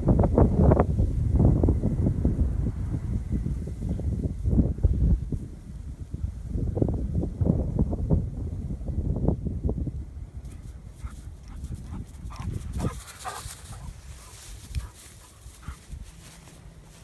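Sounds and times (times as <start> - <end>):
wind rumble on microphone: 0.0 - 17.0
dog noises: 10.5 - 16.6.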